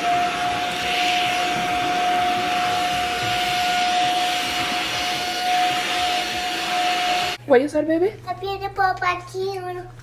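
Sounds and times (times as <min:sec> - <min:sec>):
airflow hiss: 0:00.0 - 0:07.4
vacuum motor whine: 0:00.0 - 0:07.4.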